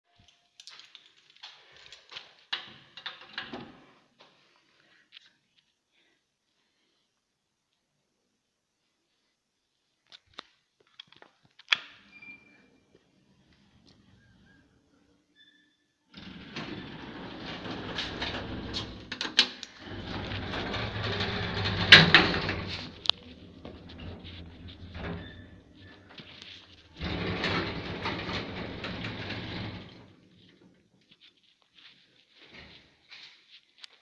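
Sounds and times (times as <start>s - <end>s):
lift rattling: 16.2s - 26.2s, 27.0s - 30.1s.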